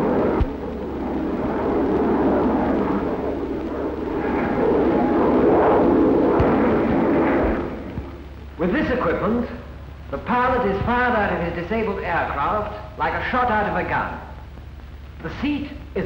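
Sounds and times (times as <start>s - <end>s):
jet aircraft flying past: 0.0s - 8.3s.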